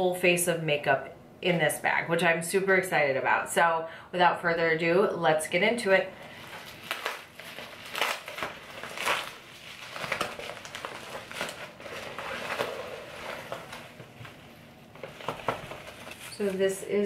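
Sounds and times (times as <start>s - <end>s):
plastic mailer rustling: 6.2s - 17.0s.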